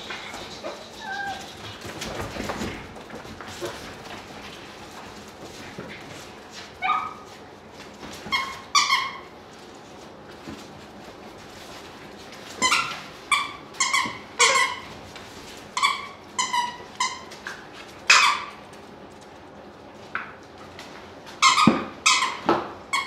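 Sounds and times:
puppies squeaking: 0.0s - 2.0s, 6.8s - 7.3s, 8.2s - 9.4s, 12.6s - 15.0s, 15.8s - 17.4s, 21.4s - 23.0s.

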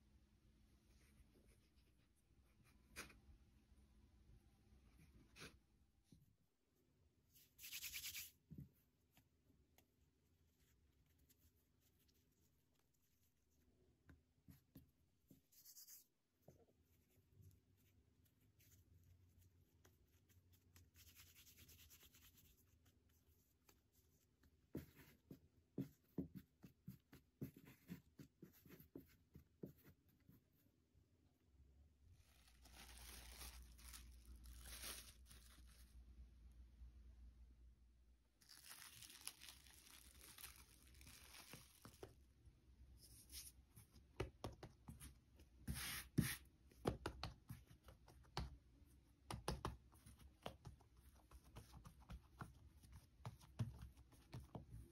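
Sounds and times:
rubbing dough: 7.4s - 30.7s, 43.0s - 54.9s
hands working dough: 7.4s - 30.9s, 38.6s - 54.9s.

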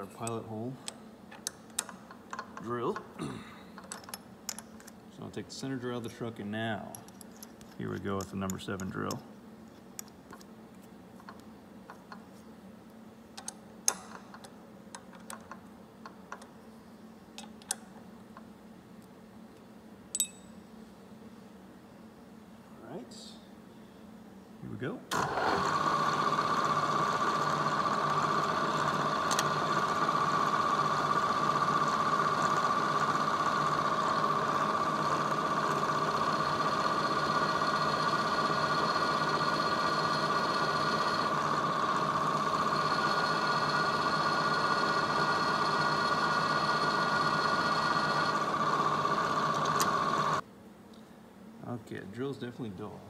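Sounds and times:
milling machine spindle whine: 25.1s - 50.4s.

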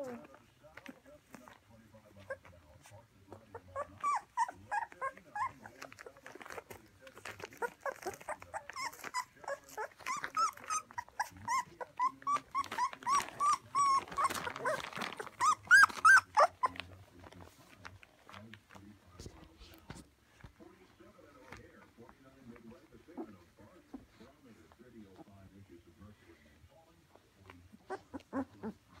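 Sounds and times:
puppy whimpering and squealing: 3.4s - 16.9s, 27.7s - 29.0s.

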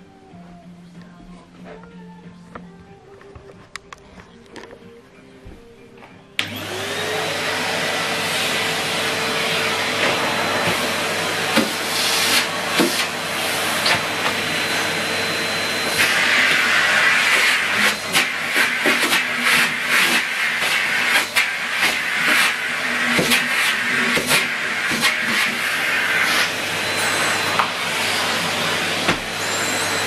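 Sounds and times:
vacuum cleaner running: 6.4s - 30.0s
vacuum floor tool on carpet: 6.4s - 30.0s.

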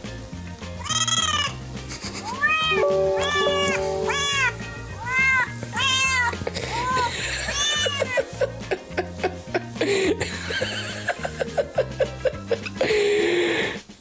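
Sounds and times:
background music: 0.0s - 14.0s
cat meowing: 0.8s - 1.5s, 2.2s - 8.2s.

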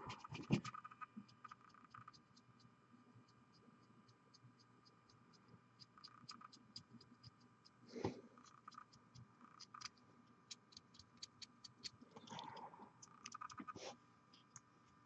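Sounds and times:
light scratching: 0.0s - 2.1s.

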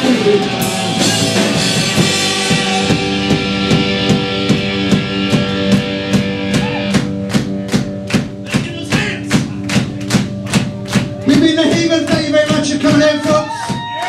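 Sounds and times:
guitar chords: 0.0s - 13.7s
drum beat: 0.0s - 14.0s
hand claps: 4.5s - 14.0s.

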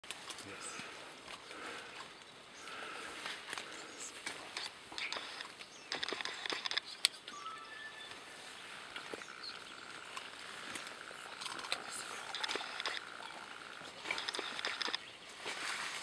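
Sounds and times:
rustling vegetation: 0.0s - 7.4s, 8.0s - 16.0s
gorilla chewing plant stalk: 3.2s - 6.9s, 9.9s - 15.0s.

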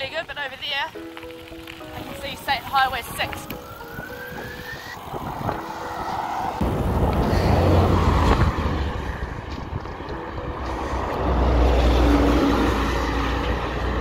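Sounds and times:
campervan passing: 0.0s - 14.0s
heavy truck passing: 4.4s - 14.0s.

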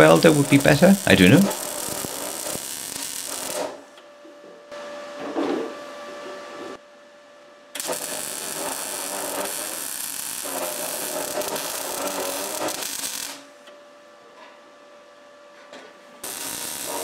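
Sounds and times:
welder arc crackling: 0.0s - 3.8s, 7.8s - 13.5s, 16.2s - 17.0s.

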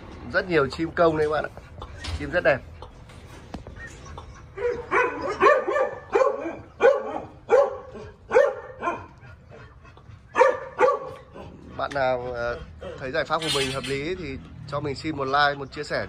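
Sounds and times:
animal barking calls: 3.6s - 15.5s.

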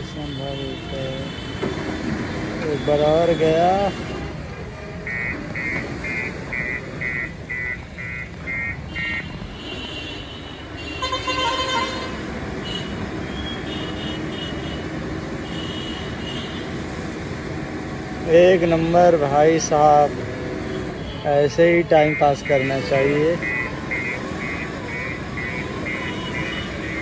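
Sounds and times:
diesel engine running: 0.0s - 9.7s, 10.6s - 27.0s
reversing alarm beeps: 5.0s - 9.2s, 21.9s - 27.0s.

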